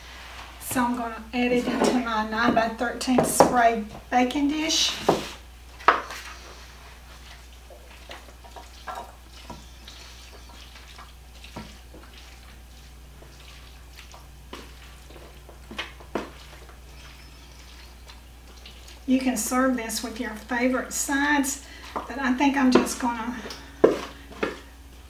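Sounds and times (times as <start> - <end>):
wet mixture sliding and plopping: 5.3 - 19.1.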